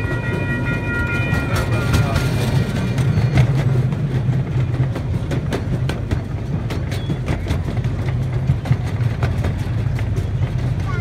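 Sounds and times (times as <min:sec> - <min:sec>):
train rumbling on track: 0:00.0 - 0:11.0
wheels clacking on rails: 0:00.0 - 0:11.0.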